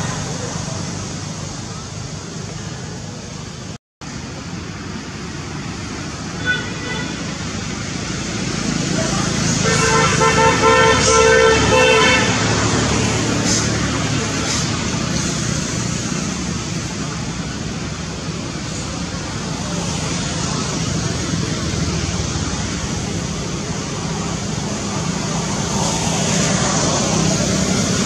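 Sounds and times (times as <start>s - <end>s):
road traffic rumble: 0.0s - 28.0s
vehicle horn blast: 9.6s - 12.4s.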